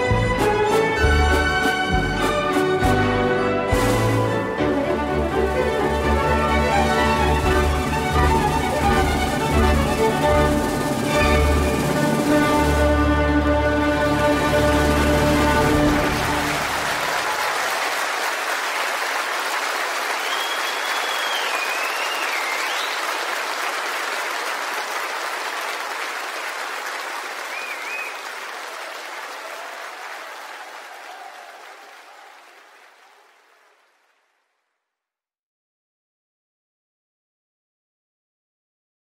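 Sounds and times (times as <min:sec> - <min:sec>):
audience applauding: 0:05.0 - 0:34.6.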